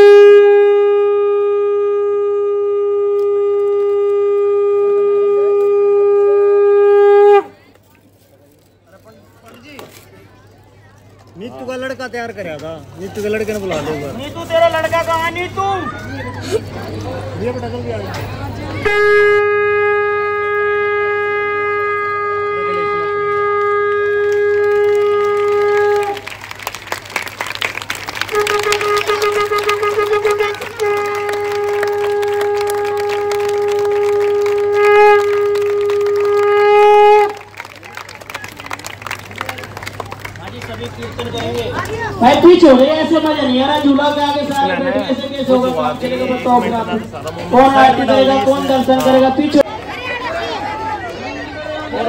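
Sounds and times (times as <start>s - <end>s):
conch shell blown: 0.0s - 7.6s, 18.8s - 26.4s, 28.2s - 38.4s.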